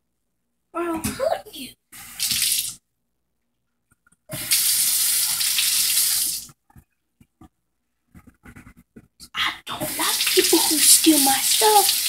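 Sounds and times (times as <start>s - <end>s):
kitchen tap running: 2.0s - 2.8s, 4.3s - 6.6s, 9.7s - 12.0s.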